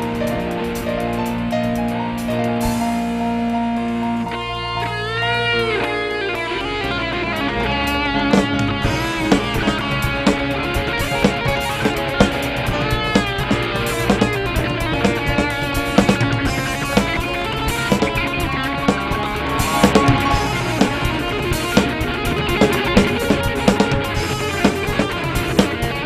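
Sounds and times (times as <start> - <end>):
electric guitar-led band: 0.0 - 26.0
drum kit hits: 8.4 - 25.0.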